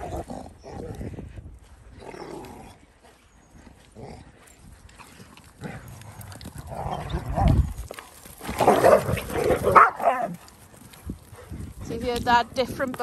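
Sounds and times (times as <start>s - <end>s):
dogs growling: 0.0s - 1.2s, 1.8s - 11.8s
dogs barking: 8.6s - 10.4s.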